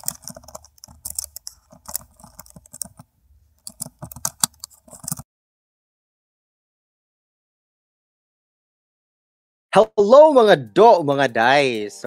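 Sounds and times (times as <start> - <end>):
keyboard keystroke clicks: 0.0 - 3.0, 3.6 - 5.2.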